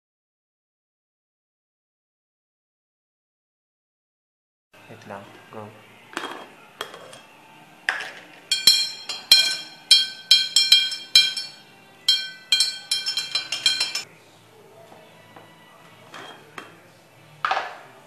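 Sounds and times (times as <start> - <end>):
spoon clinking in glass jar: 6.2 - 7.3, 8.0 - 14.1, 16.1 - 16.8.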